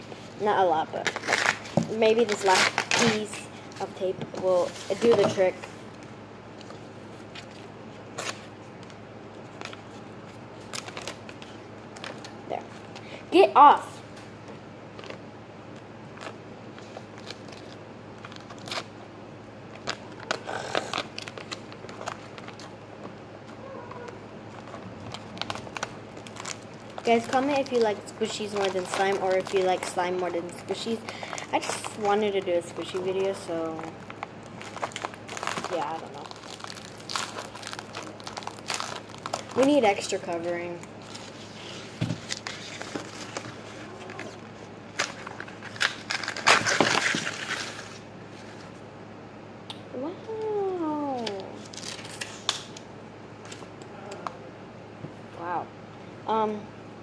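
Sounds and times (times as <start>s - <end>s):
sticky tape crackling: 0.9s - 5.5s, 23.4s - 48.0s
tape ripping: 1.0s - 3.3s, 42.2s - 48.0s.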